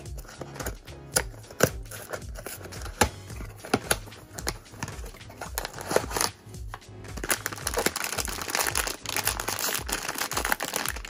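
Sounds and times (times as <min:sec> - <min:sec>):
background music with steady beat: 0:00.0 - 0:11.0
plastic bag crinkling: 0:07.1 - 0:11.0.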